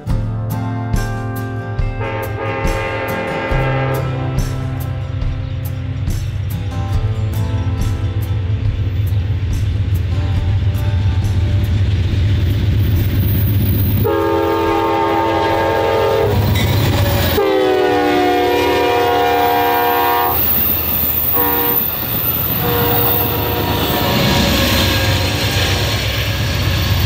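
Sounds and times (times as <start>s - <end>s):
train rumbling past: 0.0s - 27.0s
train wheels clattering: 1.8s - 27.0s
locomotive air horn blasts: 2.0s - 4.9s, 14.0s - 20.5s, 21.3s - 22.0s, 22.6s - 26.0s.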